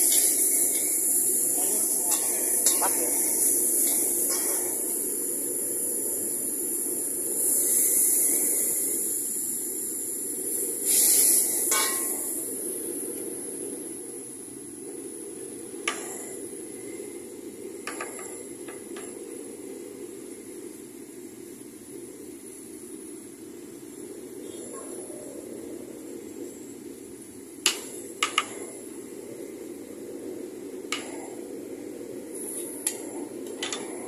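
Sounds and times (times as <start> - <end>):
burner rumble: 0.0 - 34.0
food sizzling in a wok: 0.0 - 34.0.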